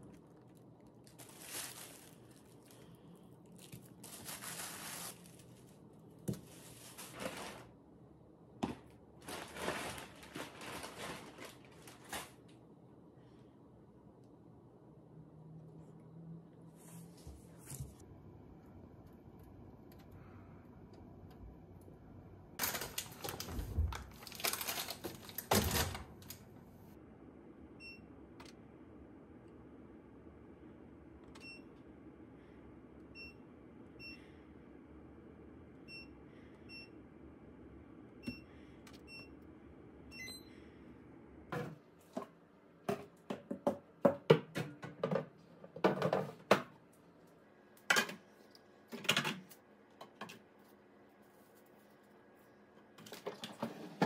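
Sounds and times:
rustling handling noise: 0.0 - 7.8, 8.7 - 12.6, 22.6 - 26.4.

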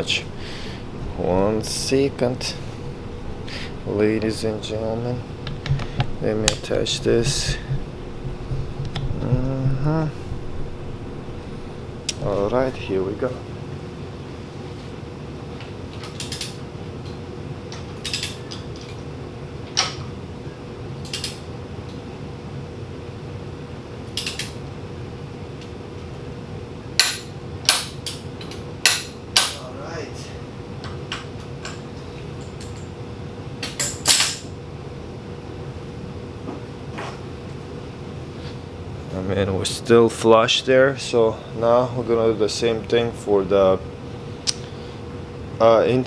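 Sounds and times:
low hum: 0.0 - 15.2
steady low hum: 0.0 - 46.0.

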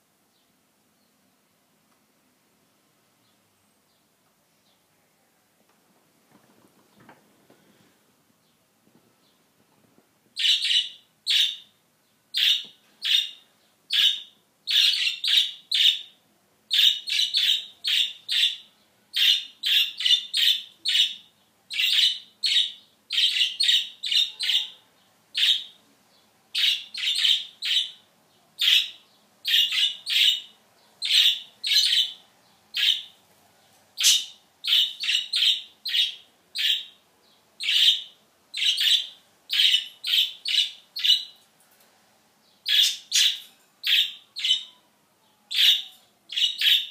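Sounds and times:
budgerigar chirping: 10.4 - 11.7, 12.4 - 24.8, 25.4 - 25.8, 26.6 - 28.0, 28.6 - 33.1, 34.0 - 37.0, 37.6 - 41.4, 42.6 - 44.8, 45.5 - 46.9.

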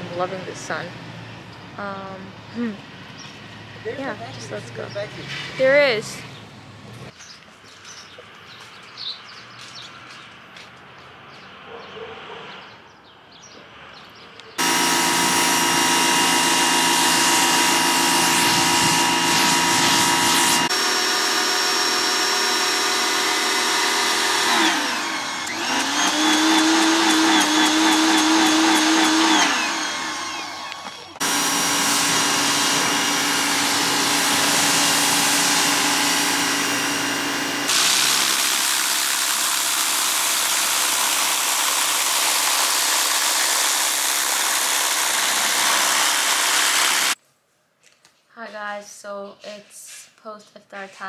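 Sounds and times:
pressure washer motor whine: 14.6 - 47.2.

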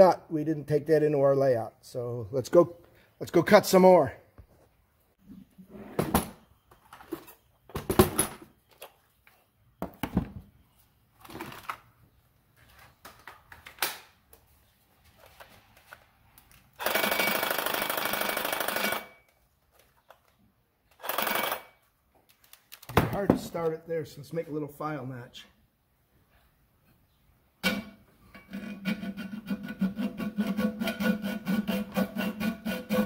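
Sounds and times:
reciprocating saw cutting metal: 28.6 - 33.0.

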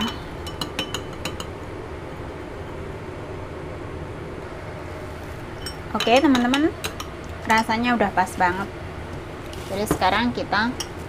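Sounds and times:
metal spoon clinking on bowl: 0.0 - 1.5, 5.6 - 7.8.

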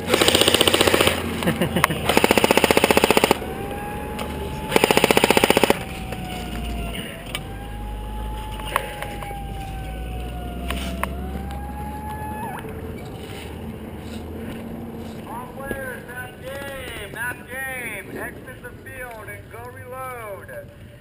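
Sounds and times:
airsoft rifle automatic fire: 0.0 - 1.4, 2.0 - 3.7, 4.6 - 6.2
low engine rumble: 0.0 - 21.0
siren wailing: 3.2 - 13.0.

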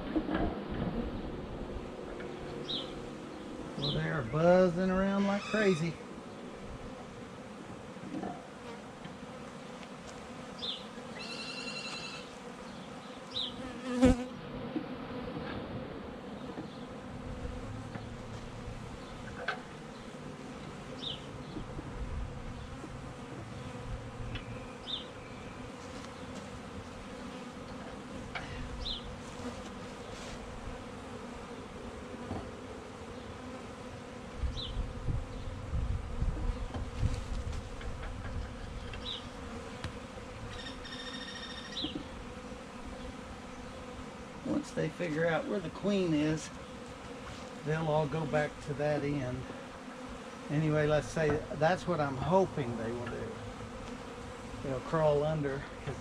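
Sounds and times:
honeybees buzzing: 0.0 - 56.0.

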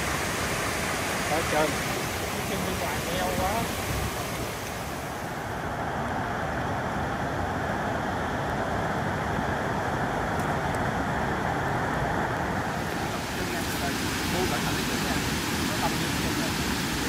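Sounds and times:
water rushing over cascades: 0.0 - 17.0.

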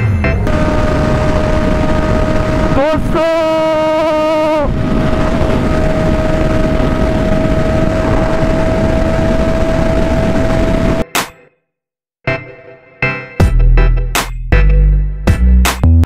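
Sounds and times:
motorcycle engine at high revs: 0.3 - 11.0
wind rush: 0.4 - 11.0.

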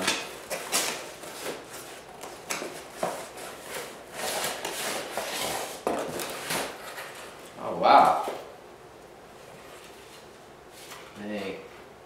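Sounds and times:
cardboard and paper rustling: 0.0 - 7.4
sharp cardboard scrapes: 2.8 - 6.7.

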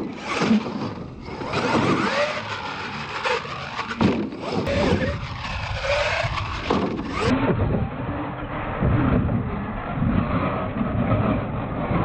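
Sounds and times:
toy truck motor whining: 0.0 - 7.3
tyres on packed dirt: 0.0 - 7.4.

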